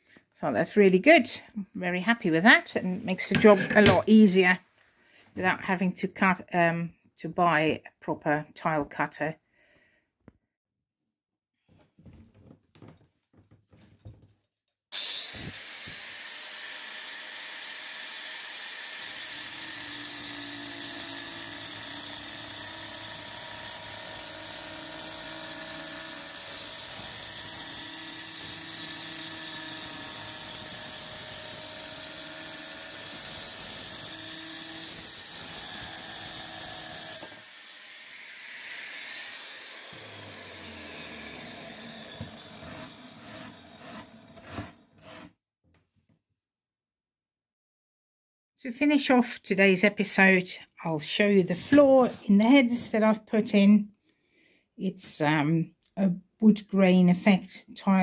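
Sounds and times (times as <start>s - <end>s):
angle grinder cutting tile: 3.2s - 4.1s, 14.9s - 45.4s.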